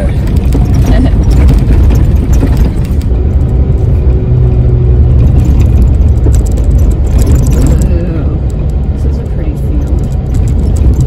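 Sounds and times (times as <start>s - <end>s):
knocks and rattles: 0.0s - 11.0s
vehicle engine and tyres rumbling: 0.0s - 11.0s.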